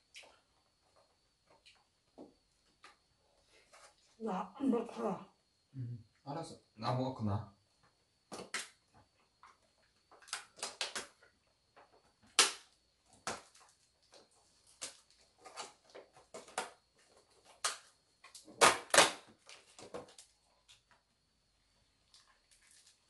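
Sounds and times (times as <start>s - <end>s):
plastic bread bag crinkling: 22.1s - 23.0s.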